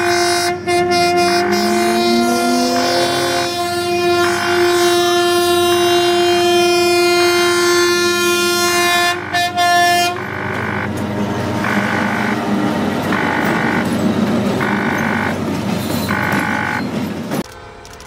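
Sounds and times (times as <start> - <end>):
locomotive horn blast: 0.0 - 15.4, 16.0 - 16.9
locomotive engine and wheels rumbling: 0.0 - 18.0
pulsing tone: 10.1 - 10.9, 11.6 - 12.4, 13.1 - 13.9, 14.6 - 15.4, 16.1 - 16.8.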